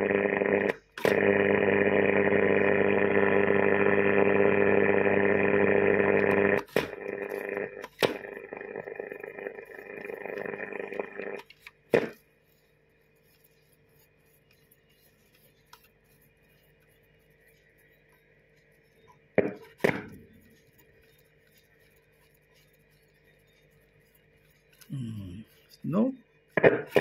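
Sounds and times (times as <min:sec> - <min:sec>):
radio static with whistling tones: 0:00.0 - 0:11.6
faint radio hum and whine: 0:00.0 - 0:12.1.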